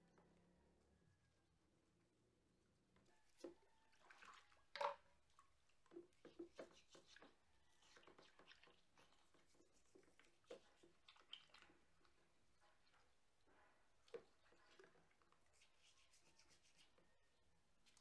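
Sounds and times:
soapy water sloshing: 3.4 - 16.2
brush scratching metal: 6.3 - 11.0, 15.4 - 17.1.

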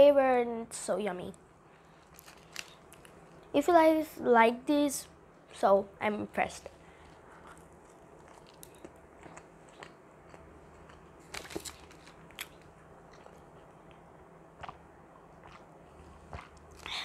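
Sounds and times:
person chewing food: 6.8 - 17.0
mouth clicks and smacks: 12.3 - 17.0.

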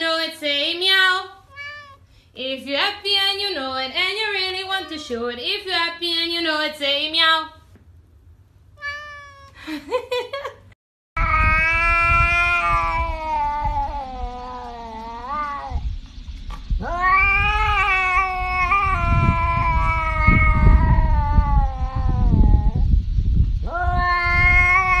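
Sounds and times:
cat yowling: 1.5 - 2.1, 4.3 - 5.3, 8.8 - 9.6, 11.2 - 15.8, 16.8 - 22.8, 23.7 - 25.0.

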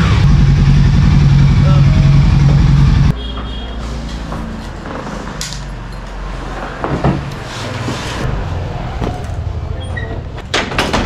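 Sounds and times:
engine knocks: 0.0 - 3.1
motorcycle engine idling: 0.0 - 3.1.

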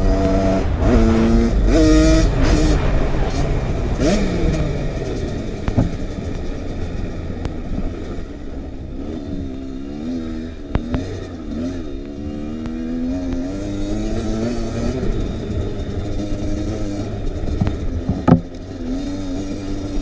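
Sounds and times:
dirt bike engine revving: 0.0 - 20.0
sharp knocks: 17.6 - 18.5.

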